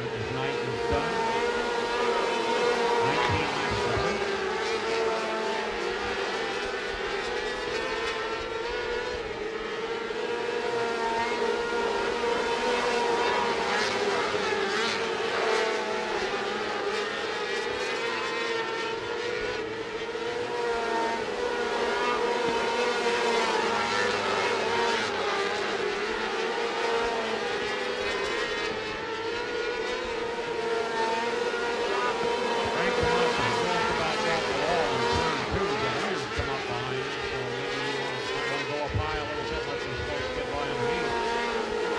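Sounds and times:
racing car engines revving: 0:00.0 - 0:41.9.

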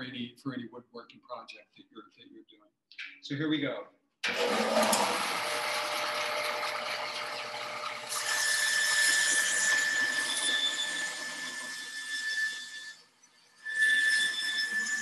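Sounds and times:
bandsaw motor running: 0:04.2 - 0:11.6
saw blade whine cutting wood: 0:04.3 - 0:15.0.

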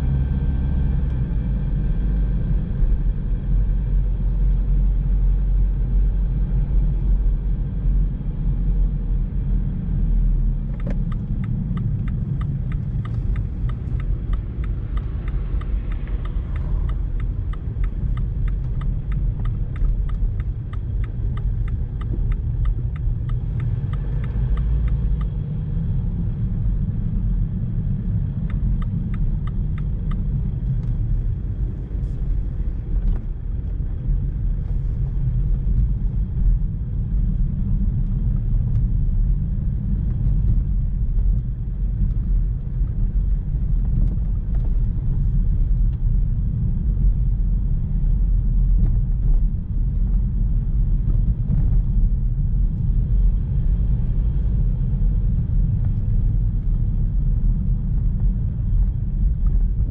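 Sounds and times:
car road and engine rumble: 0:00.0 - 0:59.9
turn signal ticking: 0:10.6 - 0:47.2, 0:48.7 - 0:59.9.

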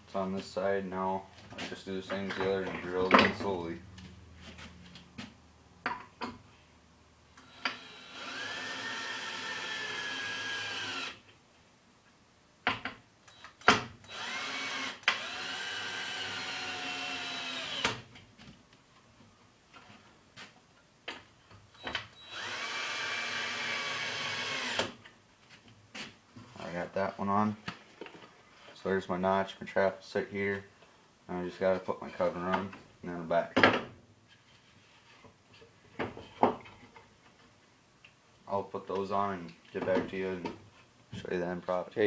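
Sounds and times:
power drill driving screws: 0:07.4 - 0:11.2, 0:13.3 - 0:18.1, 0:21.8 - 0:25.0.

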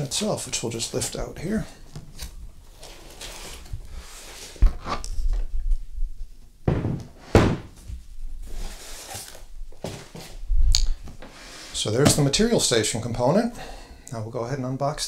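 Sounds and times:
packaging scraping and rustling: 0:02.1 - 0:05.3, 0:08.4 - 0:10.4
thumps on table: 0:06.7 - 0:07.8.

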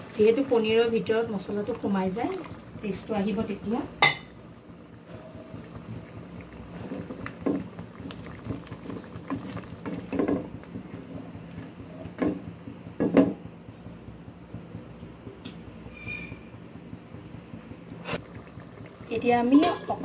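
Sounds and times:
curry bubbling in a wok: 0:00.0 - 0:11.5, 0:18.2 - 0:20.0.

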